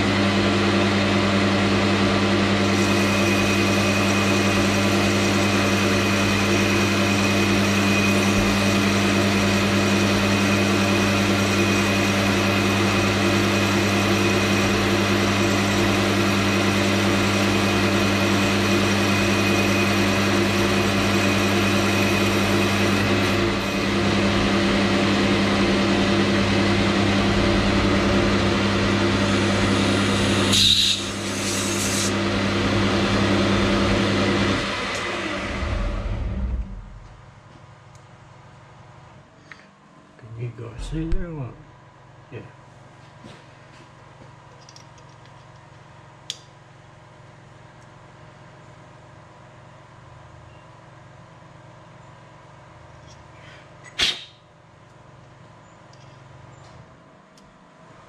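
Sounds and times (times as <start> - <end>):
metal lathe running: 0.2 - 36.4.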